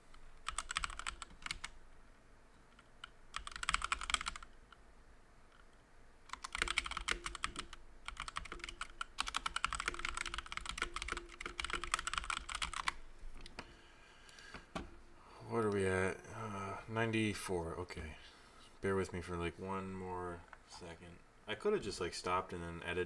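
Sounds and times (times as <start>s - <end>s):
computer keyboard typing: 0.4s - 1.8s, 2.7s - 4.6s, 6.3s - 13.0s.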